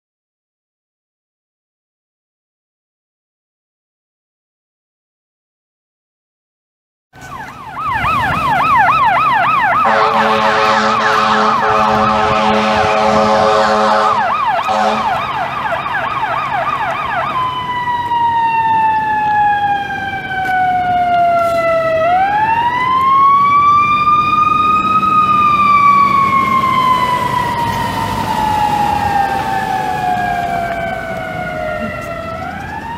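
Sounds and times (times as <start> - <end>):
electronic siren yelp and wail: 7.2 - 32.9
steady horn-like blast: 9.8 - 15.3.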